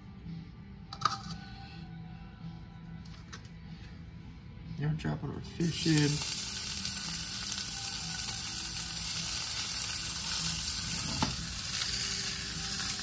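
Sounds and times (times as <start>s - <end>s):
fish sizzling in oil: 5.6s - 13.0s.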